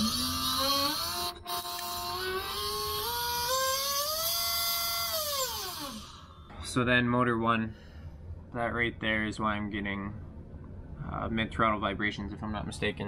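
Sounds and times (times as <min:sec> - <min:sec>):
electric motor whining: 0:00.0 - 0:06.3.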